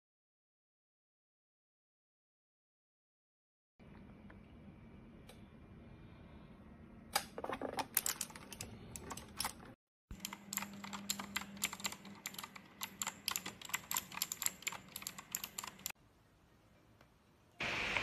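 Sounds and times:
mechanical keyboard typing: 0:10.2 - 0:16.0.

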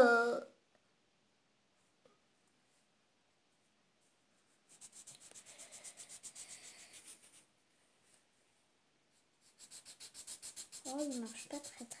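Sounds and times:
marker scribbling on paper: 0:04.7 - 0:07.5, 0:09.4 - 0:12.0.

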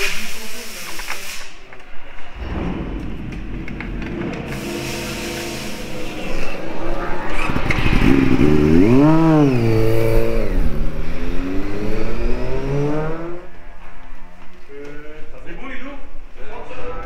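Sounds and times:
motorcycle engine revving: 0:02.4 - 0:13.6.

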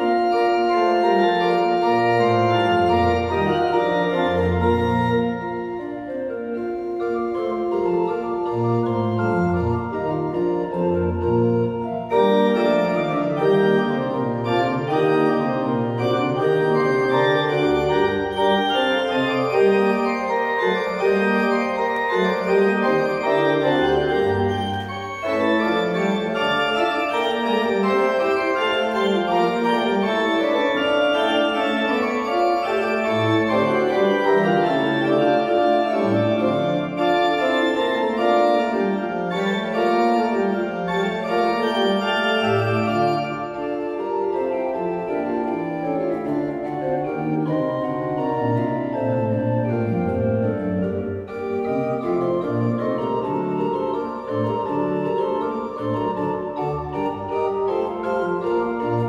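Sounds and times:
pipe organ playing: 0:00.0 - 0:59.0.

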